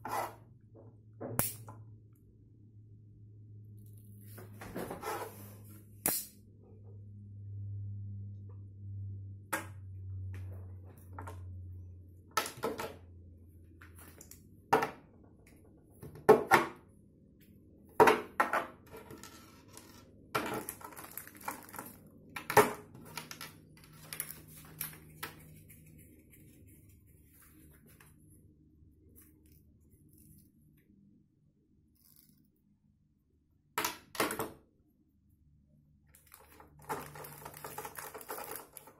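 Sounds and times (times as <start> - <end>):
low hum: 5.7 - 12.4.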